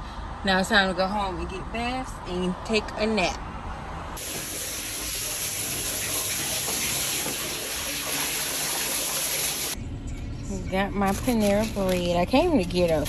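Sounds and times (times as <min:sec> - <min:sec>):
water running in a bathtub: 0:04.2 - 0:09.8.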